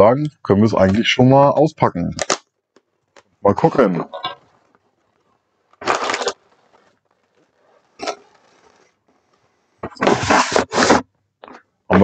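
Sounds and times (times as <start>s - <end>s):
plastic bags rustling: 3.0s - 9.5s
cardboard scrape: 3.7s - 11.1s.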